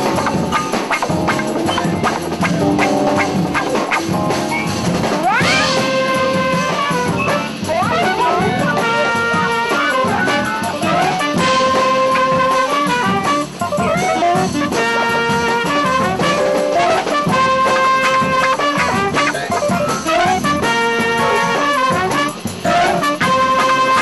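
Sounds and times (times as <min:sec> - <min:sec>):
jazz band playing: 0:00.0 - 0:24.0
horn sliding into held notes: 0:05.4 - 0:24.0.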